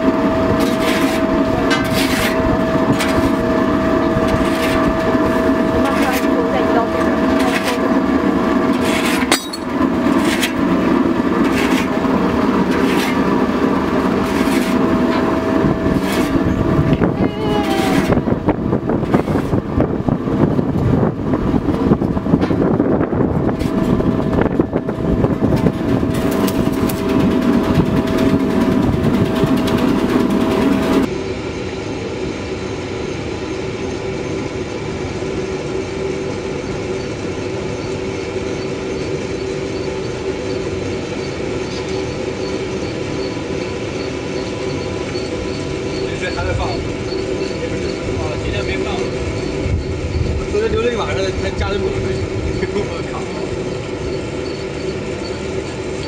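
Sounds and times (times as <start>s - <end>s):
machinery hum: 0.0s - 56.0s
motor drive whining: 0.0s - 56.0s
metallic knocks and clanks: 9.2s - 9.8s.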